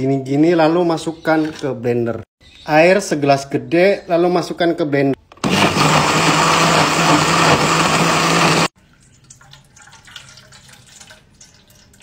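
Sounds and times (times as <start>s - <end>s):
blender running: 5.3s - 8.7s
liquid trickling through strainer: 8.8s - 12.0s.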